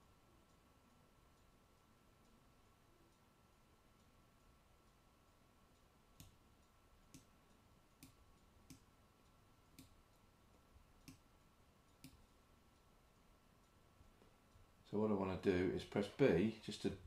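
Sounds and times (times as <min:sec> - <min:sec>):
faint steady hum: 0:00.0 - 0:17.0
mouse and keyboard clicks: 0:11.9 - 0:12.2.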